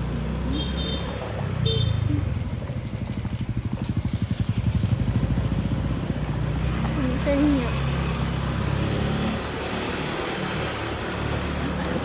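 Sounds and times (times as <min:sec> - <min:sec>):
small motorbike engine running: 0:02.0 - 0:12.0.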